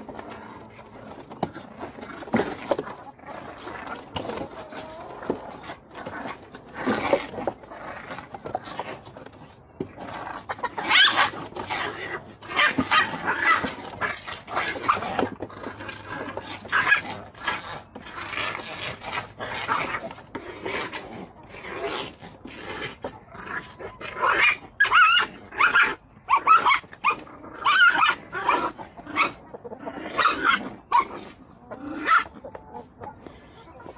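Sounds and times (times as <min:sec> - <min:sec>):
puppies yipping and whining: 0:00.0 - 0:33.9.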